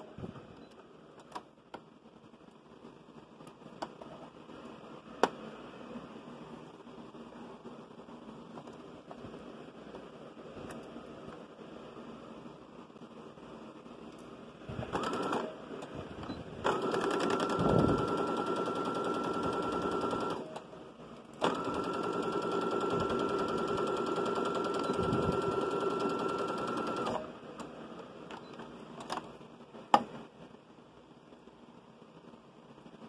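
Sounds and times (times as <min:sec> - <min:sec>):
sewing machine motor whine: 0:16.7 - 0:20.5, 0:21.4 - 0:27.2.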